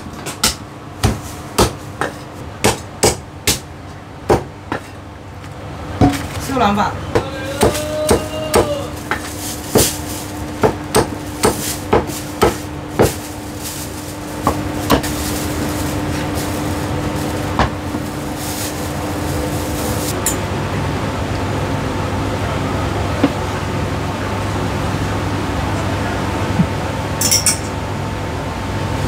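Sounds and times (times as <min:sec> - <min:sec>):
steady hum: 0:00.0 - 0:29.0
cleaver chopping on wooden block: 0:00.4 - 0:03.7.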